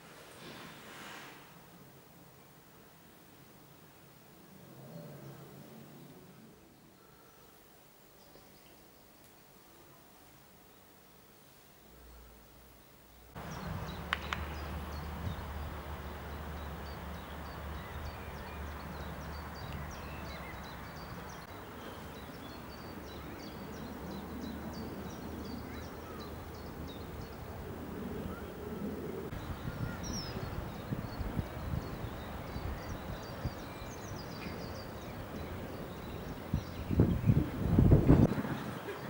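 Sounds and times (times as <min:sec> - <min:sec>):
steady low rumble: 0:13.4 - 0:21.5
birds singing: 0:13.4 - 0:27.5, 0:28.2 - 0:39.0.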